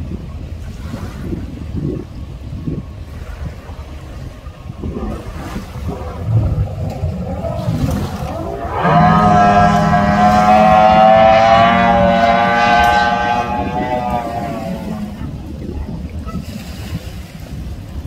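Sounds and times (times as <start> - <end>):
wind and water noise: 0.0 - 18.0
outboard motor whine: 3.8 - 16.2.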